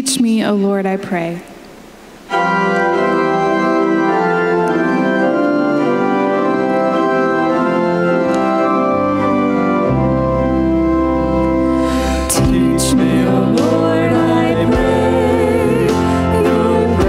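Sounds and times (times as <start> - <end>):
organ chords: 1.0 - 17.0
low bass line: 9.3 - 17.0.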